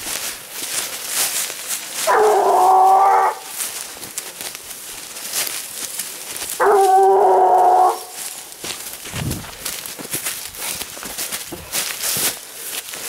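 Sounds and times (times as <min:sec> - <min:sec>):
brush crackling underfoot: 0:00.0 - 0:13.0
hound baying howl: 0:02.0 - 0:03.6, 0:06.6 - 0:08.4.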